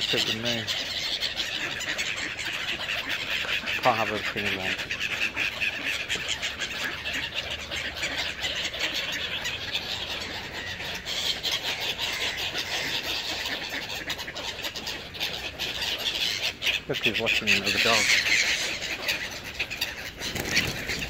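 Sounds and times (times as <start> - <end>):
birds calling: 0.0 - 21.0
wings flapping: 11.5 - 21.0.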